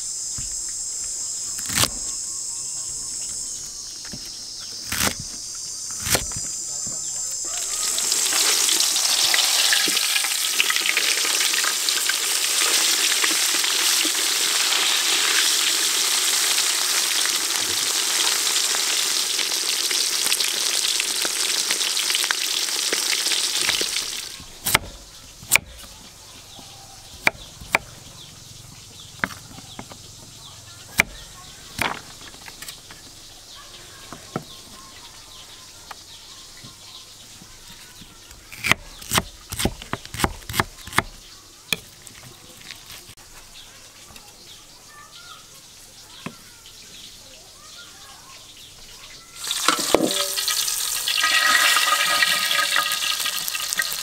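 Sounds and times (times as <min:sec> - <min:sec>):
fish sizzling in hot oil: 0:07.4 - 0:25.4, 0:49.3 - 0:54.0.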